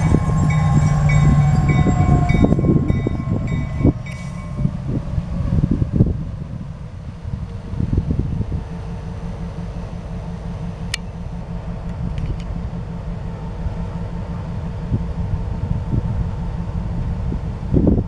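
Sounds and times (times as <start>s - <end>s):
locomotive diesel engine rumbling: 0.0s - 18.0s.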